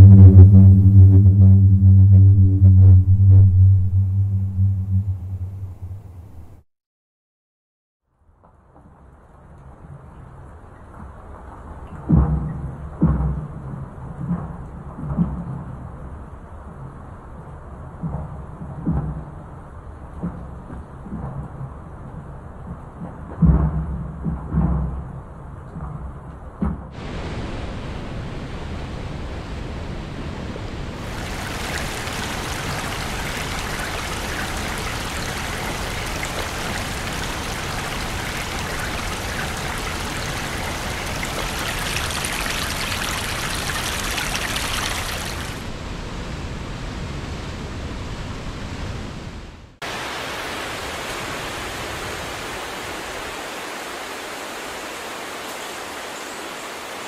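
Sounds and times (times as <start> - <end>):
even rushing noise: 0.0 - 6.6, 27.0 - 45.7
river rushing over rapids: 31.0 - 45.7, 49.8 - 57.0.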